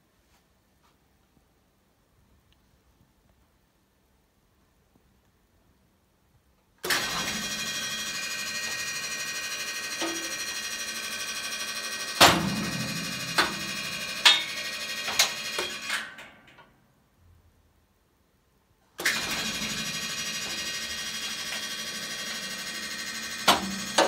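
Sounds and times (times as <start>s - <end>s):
machine running mechanically: 6.8s - 16.3s, 19.0s - 24.0s
sharp mechanical knocks: 12.2s - 16.1s, 23.4s - 24.0s.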